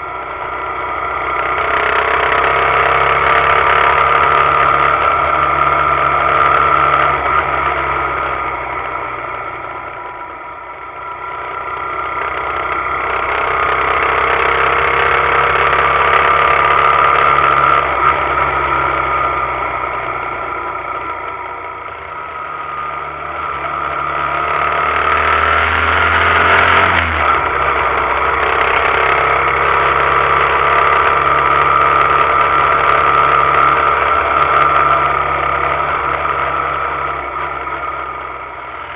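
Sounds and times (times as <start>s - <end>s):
muffled motorcycle engine: 0.0s - 38.9s.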